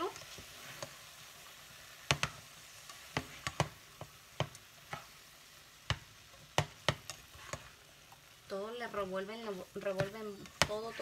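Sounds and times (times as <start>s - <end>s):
low steady sizzle: 0.0s - 11.0s
spatula scraping pan: 0.1s - 1.2s, 1.8s - 5.2s, 5.9s - 8.2s, 9.0s - 11.0s.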